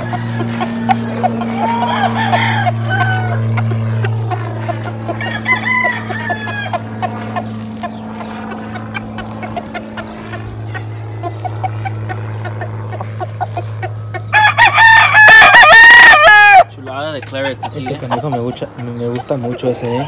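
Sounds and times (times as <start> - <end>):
rooster crowing: 0.0 - 3.7, 5.1 - 7.0, 14.2 - 16.7
roosters clucking: 0.0 - 20.0
steady low hum: 0.0 - 20.0.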